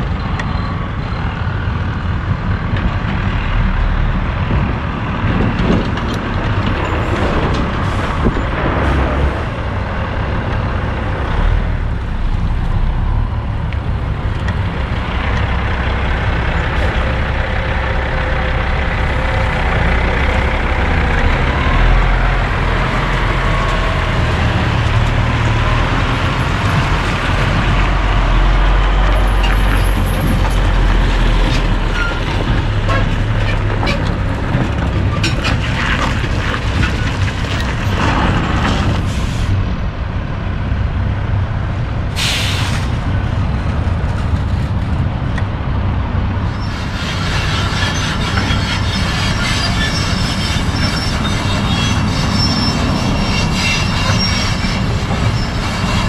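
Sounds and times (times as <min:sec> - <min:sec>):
diesel truck engine under load: 0:00.0 - 0:56.0.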